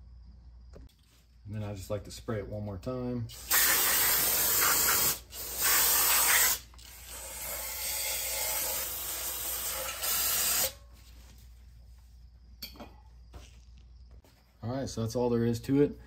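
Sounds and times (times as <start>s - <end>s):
aerosol spray can hissing: 3.4s - 6.7s.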